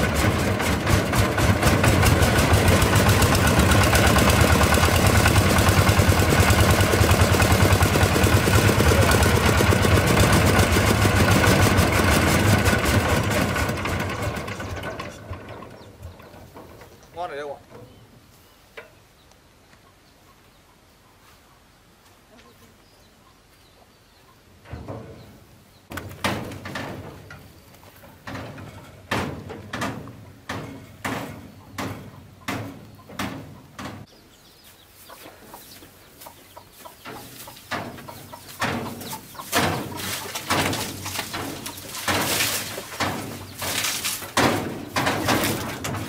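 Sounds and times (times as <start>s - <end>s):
sheet metal machine clanking and rattling: 0.0s - 17.9s, 26.2s - 34.1s, 37.7s - 46.0s.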